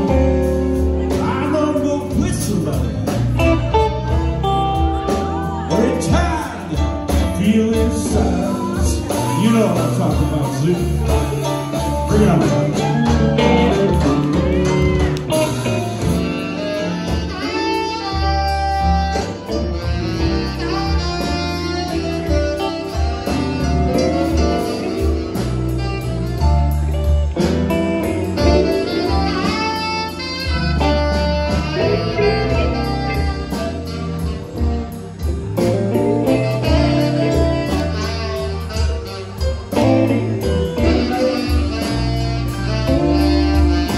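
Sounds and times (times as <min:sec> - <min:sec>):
electric blues band playing: 0:00.0 - 0:43.9
saxophone long held notes: 0:10.2 - 0:43.9.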